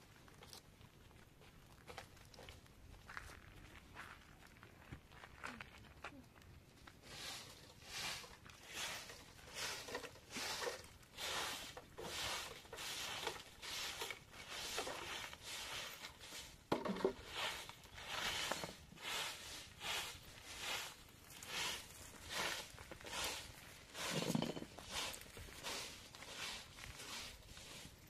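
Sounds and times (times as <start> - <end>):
branches sweeping dirt floor: 6.8 - 28.0.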